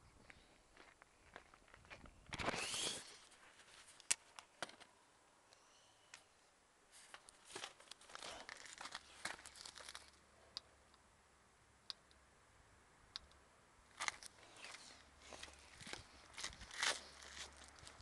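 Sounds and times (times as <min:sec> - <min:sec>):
crinkly rustling and crunching: 0:06.9 - 0:10.2, 0:13.9 - 0:18.0.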